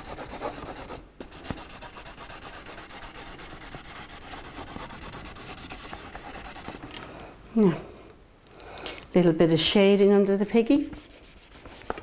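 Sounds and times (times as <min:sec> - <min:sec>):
crayon rubbing on paper: 0:00.0 - 0:06.8, 0:11.0 - 0:12.0.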